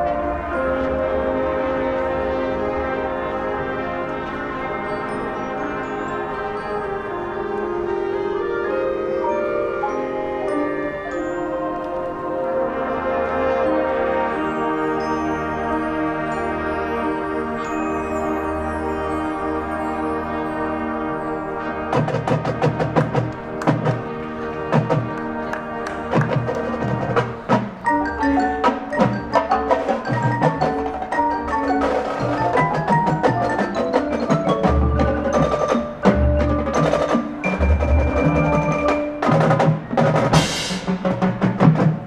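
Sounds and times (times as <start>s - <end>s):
drums: 21.9s - 42.0s
marimbas playing quick runs: 24.8s - 42.0s.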